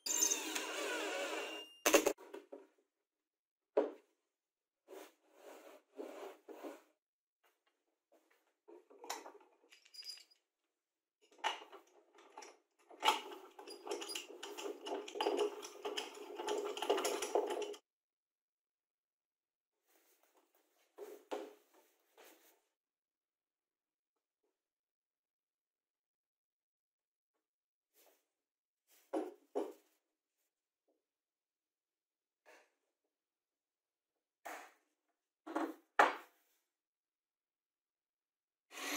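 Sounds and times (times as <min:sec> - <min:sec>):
wood scraping and rattling: 0:11.7 - 0:17.8.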